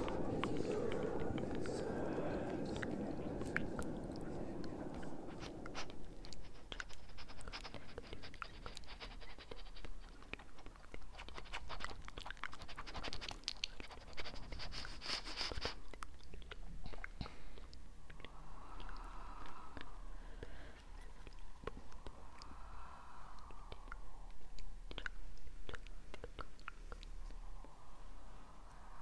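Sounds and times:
hissy rustle: 0.0s - 15.8s.

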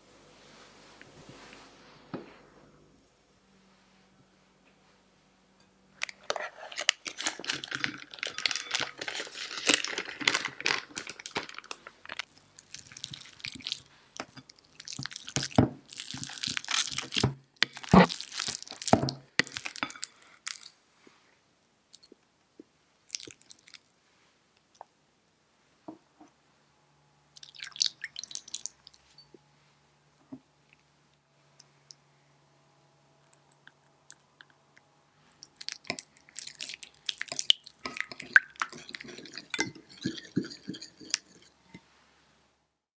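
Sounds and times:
pumpkin mashing squelches: 35.6s - 41.5s.

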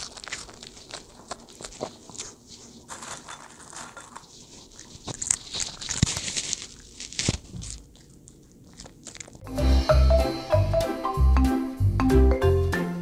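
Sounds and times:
teeth clicking: 0.0s - 2.4s, 4.6s - 9.5s
dog crunching and chewing: 0.0s - 9.5s
marimba jingle: 9.5s - 13.0s.

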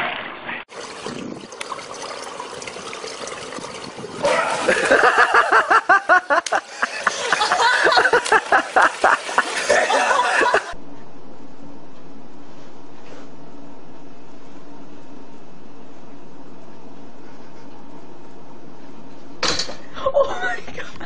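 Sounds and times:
people laughing hard: 4.3s - 10.8s
low hum: 10.7s - 20.1s.

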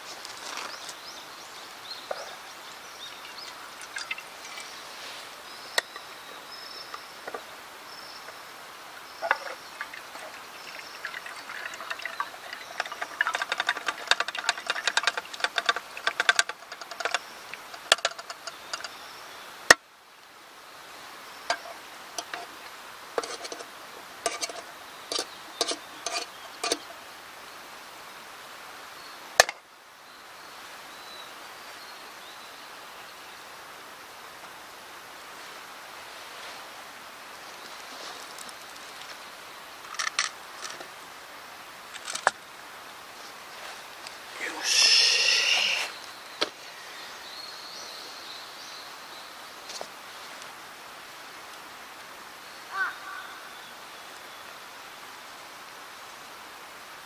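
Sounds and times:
river rushing: 2.4s - 16.0s
metal utensil scraping camp cookware: 3.4s - 5.2s, 9.2s - 19.0s, 21.5s - 22.6s, 23.2s - 26.9s, 44.4s - 46.0s.

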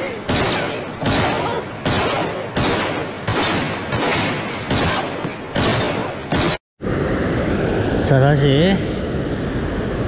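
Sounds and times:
loud gunshot-like bangs: 0.3s - 6.6s.

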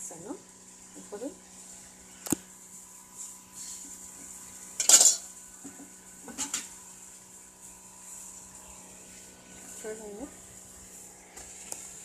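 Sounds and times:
cookware clinking and clattering: 4.8s - 5.2s.

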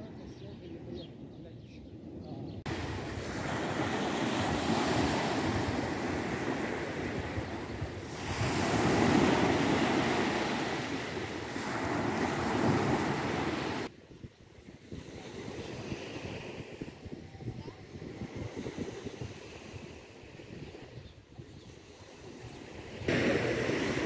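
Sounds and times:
waves washing on sandy shore: 2.7s - 14.0s, 14.6s - 20.9s, 21.8s - 24.0s.

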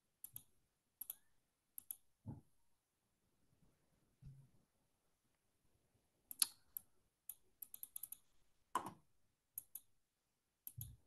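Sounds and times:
computer clicks and taps: 0.2s - 2.5s, 6.3s - 9.9s, 10.6s - 11.0s.

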